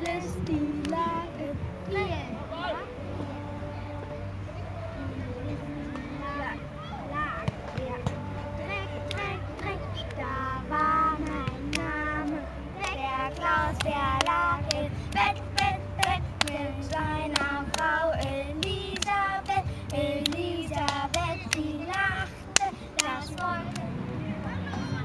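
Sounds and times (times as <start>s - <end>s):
rhythmic hand claps: 0.0s - 1.3s, 7.4s - 24.0s
girls singing: 0.0s - 25.0s.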